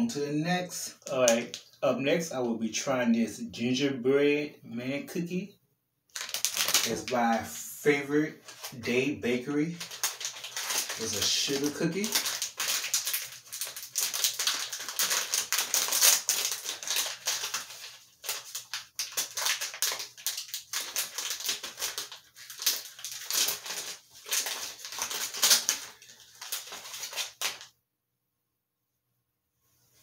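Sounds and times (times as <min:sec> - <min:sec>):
plastic packaging crinkling: 0:06.1 - 0:07.5, 0:08.4 - 0:27.7.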